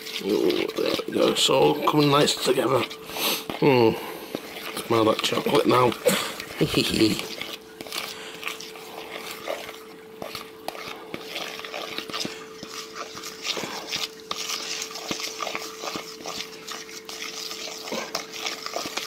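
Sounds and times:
faint steady hum: 0.0s - 19.0s
spoon scraping batter in bowl: 0.0s - 19.0s.

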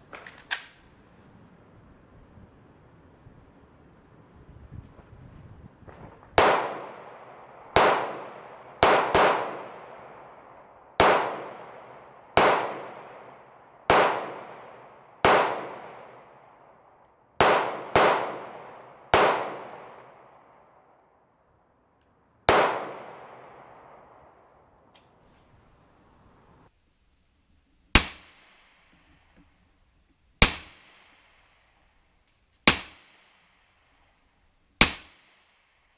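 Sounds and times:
pistol shots echoing: 6.4s - 16.4s, 17.4s - 20.7s, 22.5s - 24.5s, 30.4s - 31.6s, 32.7s - 33.5s.

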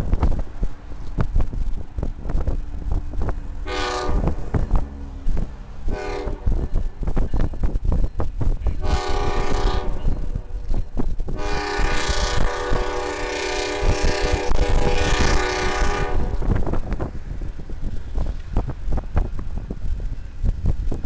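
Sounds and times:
wind noise on microphone: 0.0s - 21.0s
train air horn blasts: 3.6s - 4.9s, 5.8s - 6.8s, 8.8s - 10.6s, 11.3s - 16.7s.

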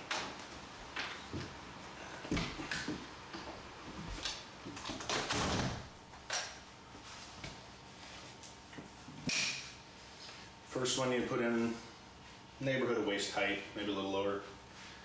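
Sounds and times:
interior door shutting: 4.8s - 5.9s.

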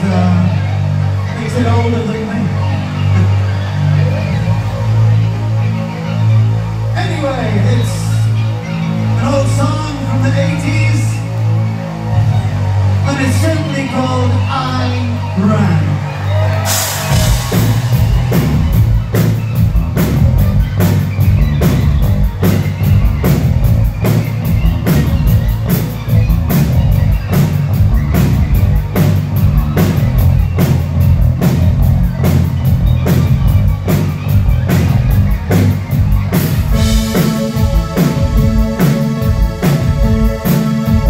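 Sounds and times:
rock band playing: 0.0s - 41.0s
steady drum beat: 16.6s - 41.0s
held pitched notes: 16.7s - 41.0s.

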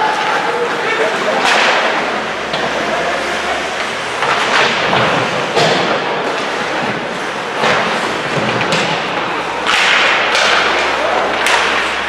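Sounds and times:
hockey sticks clacking on puck: 0.0s - 12.0s
thuds against rink boards: 7.6s - 12.0s.

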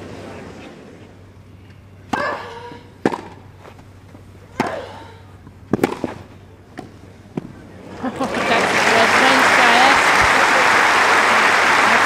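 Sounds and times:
tennis racket hitting ball: 3.0s - 3.5s, 4.5s - 5.0s, 5.7s - 7.5s.

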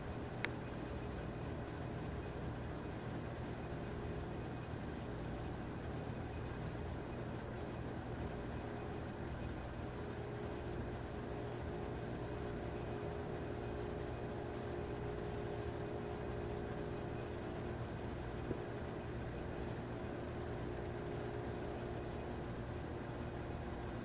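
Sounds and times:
constant hiss: 0.0s - 24.0s
faint steady tones: 0.0s - 24.0s
mechanical hum: 0.0s - 24.0s
faint click: 0.4s - 0.6s.

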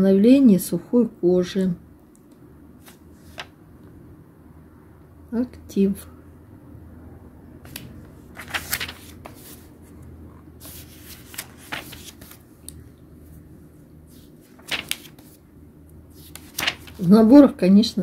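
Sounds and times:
paper pages rustling: 2.8s - 3.5s, 7.6s - 10.0s, 10.6s - 12.7s, 14.1s - 15.4s, 16.1s - 17.3s.

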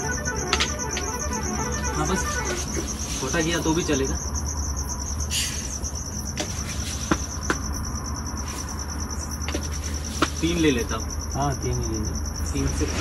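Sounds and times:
crickets chirping: 0.0s - 13.0s
knocks of things handled: 0.5s - 1.2s, 6.4s - 7.7s, 9.4s - 10.4s.

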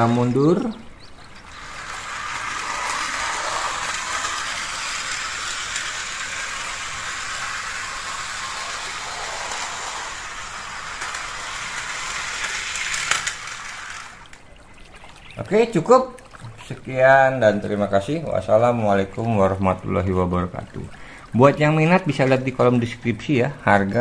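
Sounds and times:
model train motor whirring: 1.4s - 14.4s.

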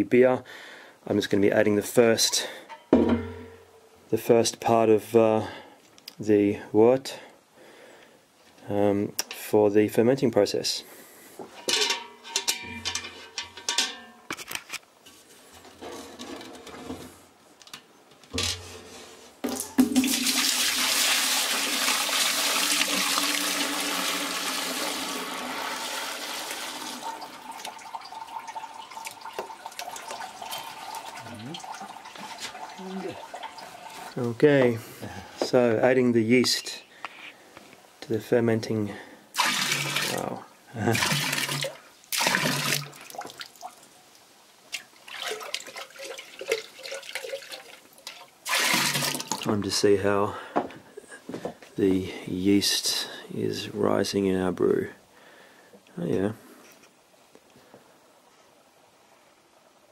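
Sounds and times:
liquid pouring and splashing: 19.5s - 34.2s, 39.4s - 43.9s, 44.7s - 49.5s
drips and small splashes: 26.3s - 34.2s, 39.4s - 49.5s.

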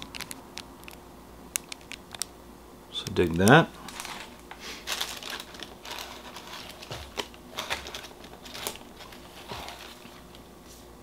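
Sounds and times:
plastic wrapping crinkling: 0.0s - 1.0s, 1.6s - 2.3s, 3.2s - 10.4s.

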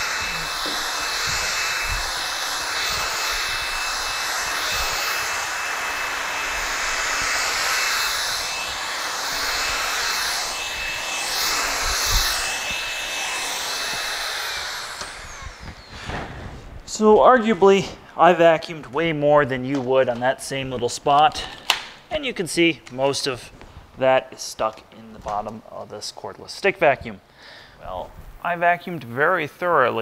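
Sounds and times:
vacuum motor winding down: 0.0s - 17.0s
stick vacuum whining: 0.0s - 22.1s.

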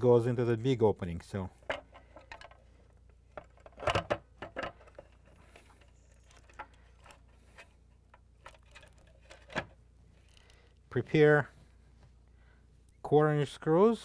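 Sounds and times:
plastic parts clicking and knocking: 1.6s - 10.8s.

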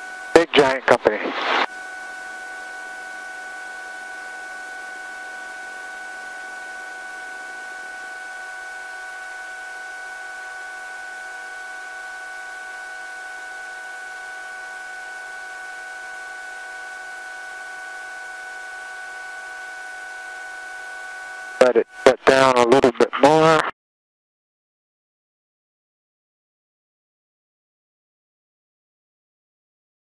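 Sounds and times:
intercom hiss: 0.3s - 1.7s, 21.6s - 23.7s
helicopter idling whine: 15.6s - 23.6s.

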